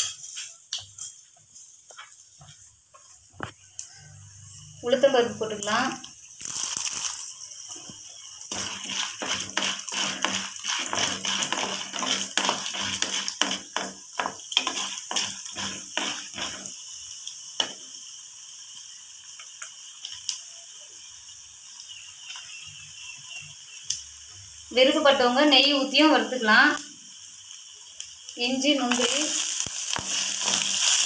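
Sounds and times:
lentils sizzling in oil: 0:00.0 - 0:31.0
wooden spatula scraping pan: 0:08.5 - 0:16.7, 0:30.0 - 0:31.0.

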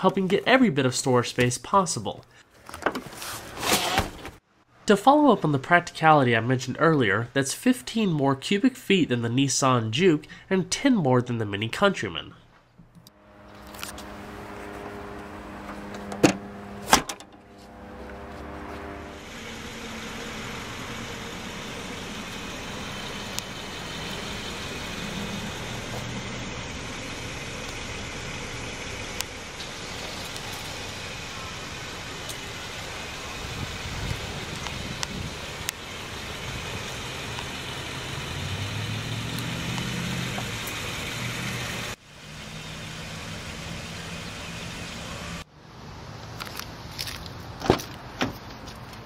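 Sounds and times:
outdoor background noise: 0:09.2 - 0:49.0
car hatch slamming shut: 0:16.0 - 0:17.3.

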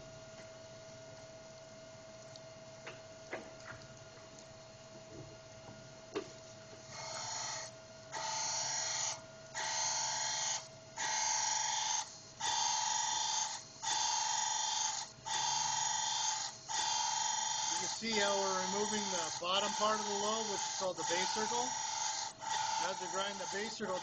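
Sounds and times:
machine hum: 0:00.0 - 0:24.0
grinding wheel hissing on metal: 0:06.8 - 0:24.0.

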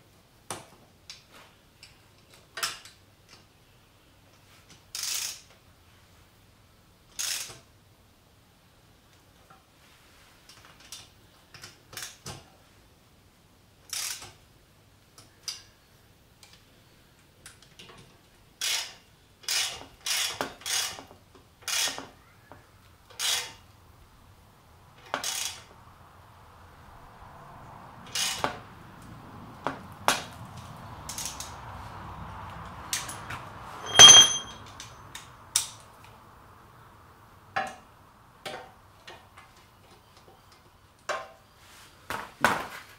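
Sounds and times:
faint steady background noise: 0:00.0 - 0:42.9
metal tools clicking and knocking: 0:33.8 - 0:34.6
metallic clank ringing: 0:33.8 - 0:34.7.

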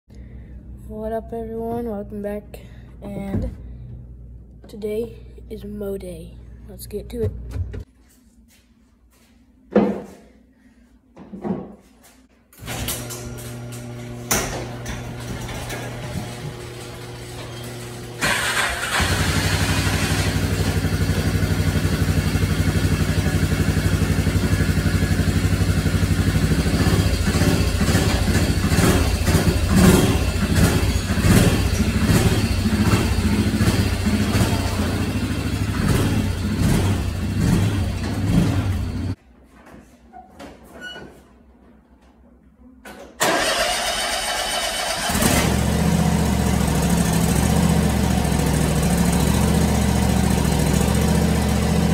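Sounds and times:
riding mower engine running: 0:12.7 - 0:39.2, 0:43.2 - 0:51.9
utility vehicle engine revving: 0:12.7 - 0:39.2, 0:43.3 - 0:51.9.

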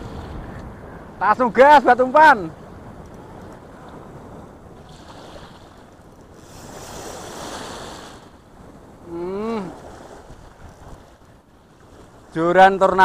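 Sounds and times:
small waves washing on sand: 0:00.0 - 0:13.0
short wordless voice: 0:09.0 - 0:09.8.

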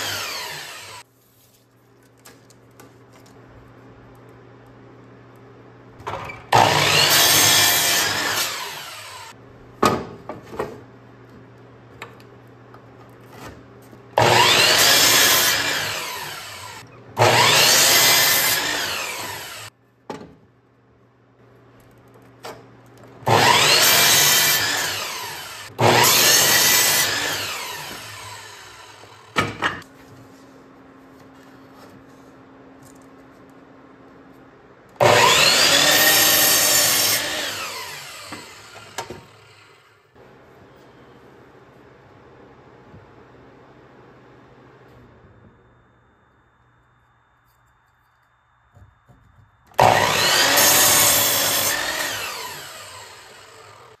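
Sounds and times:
miter saw cutting wood: 0:00.0 - 0:01.0, 0:06.5 - 0:09.4, 0:14.2 - 0:19.7, 0:23.2 - 0:29.5, 0:35.0 - 0:40.0, 0:49.8 - 0:54.0.

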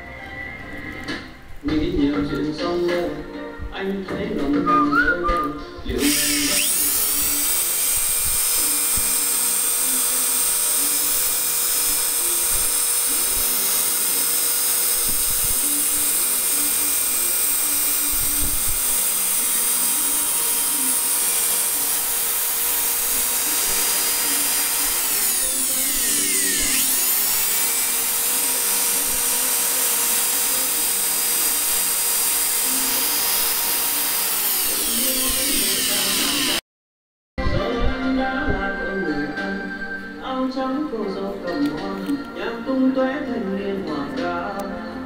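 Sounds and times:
electric drill motor whine: 0:05.9 - 0:36.6.

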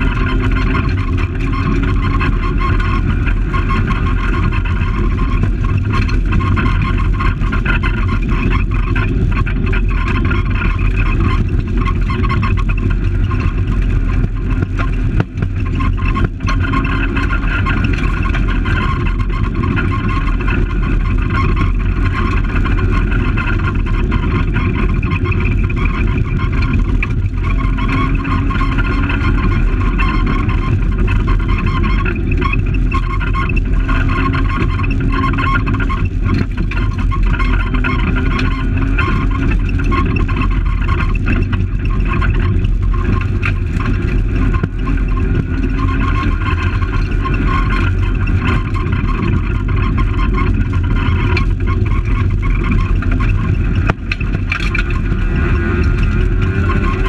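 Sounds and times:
car engine at high revs: 0:00.0 - 0:57.0
tyres on gravel road: 0:00.0 - 0:57.0.

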